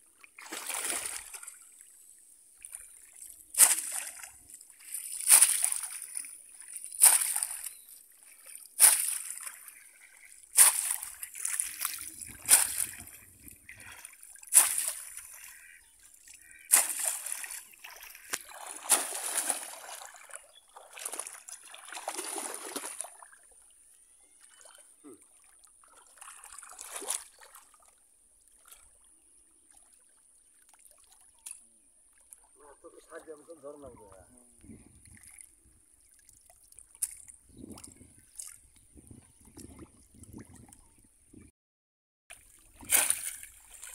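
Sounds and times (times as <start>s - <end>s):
fish trap splashing into water: 0.4s - 1.6s, 3.5s - 4.4s, 5.0s - 7.7s, 8.8s - 9.7s, 10.5s - 13.1s, 13.8s - 15.6s, 16.7s - 23.2s, 42.4s - 43.9s.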